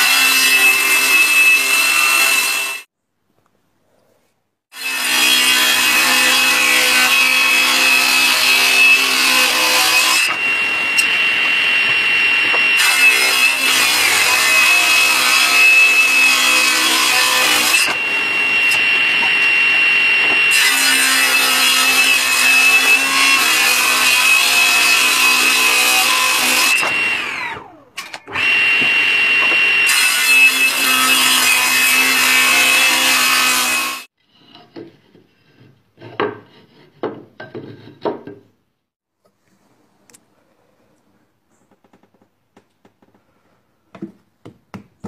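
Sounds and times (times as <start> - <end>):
table saw motor whine: 7.1 - 34.1.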